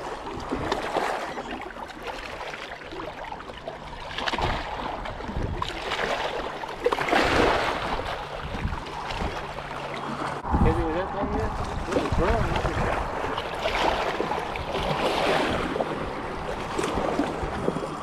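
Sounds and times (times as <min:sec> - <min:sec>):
waves lapping against rocks: 0:00.0 - 0:18.0
wind on microphone: 0:04.4 - 0:05.8, 0:07.2 - 0:09.6, 0:10.3 - 0:18.0.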